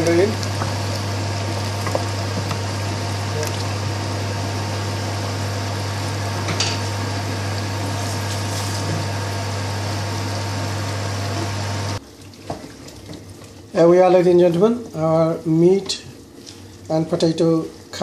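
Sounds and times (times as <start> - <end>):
curry simmering in a pot: 0.0 - 14.9.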